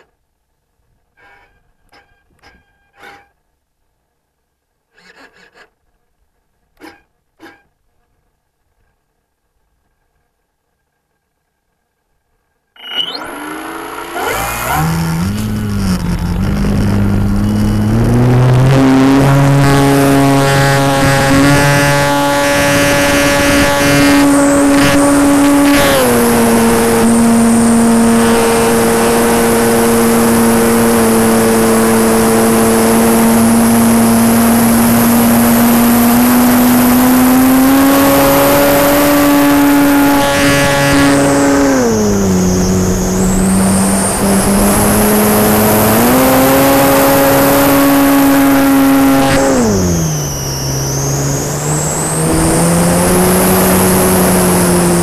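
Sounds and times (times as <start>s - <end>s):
electric motor and propeller whine: 12.8s - 55.0s.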